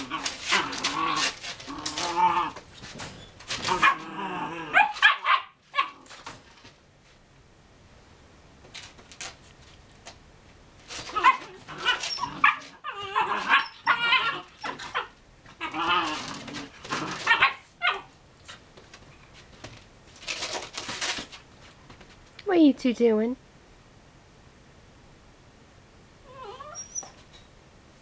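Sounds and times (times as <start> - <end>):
puppies barking and yipping: 11.0 - 16.4, 17.2 - 18.1.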